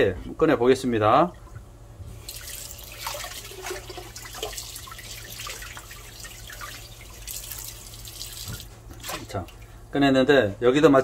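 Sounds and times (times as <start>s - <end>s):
water splashing: 2.2s - 9.8s.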